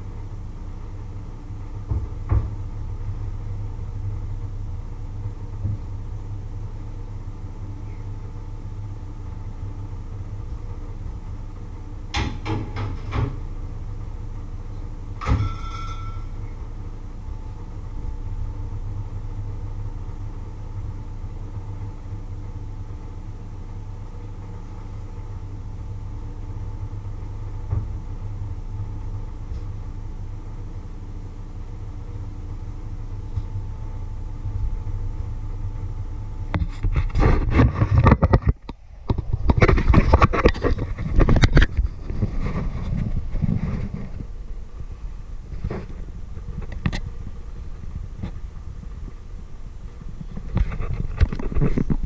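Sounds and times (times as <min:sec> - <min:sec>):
low hum: 0:00.0 - 0:52.0
metallic clatter: 0:15.2 - 0:16.5.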